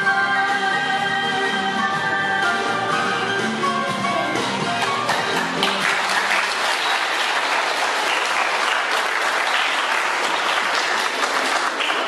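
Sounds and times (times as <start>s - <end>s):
dance music: 0.0s - 6.9s
audience applauding: 4.8s - 12.0s.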